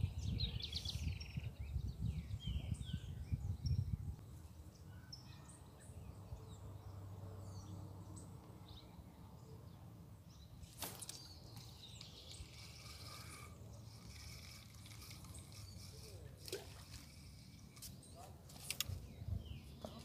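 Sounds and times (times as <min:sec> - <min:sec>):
faint bird chirps: 0:00.0 - 0:20.0.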